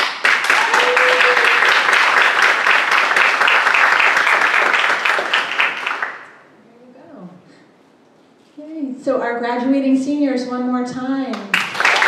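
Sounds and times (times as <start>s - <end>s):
audience applauding: 0.0s - 6.4s, 11.5s - 12.0s.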